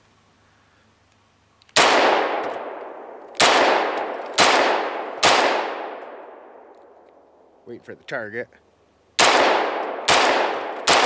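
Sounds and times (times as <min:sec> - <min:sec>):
pistol shots with echo: 0:01.8 - 0:06.6, 0:09.2 - 0:11.0.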